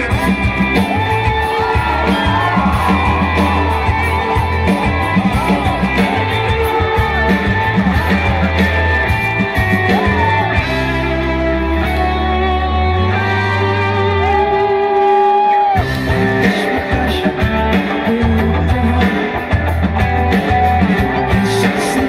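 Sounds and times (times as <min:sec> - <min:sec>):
guitar chords ringing: 0:00.0 - 0:14.8
live rock band playing: 0:00.0 - 0:22.0.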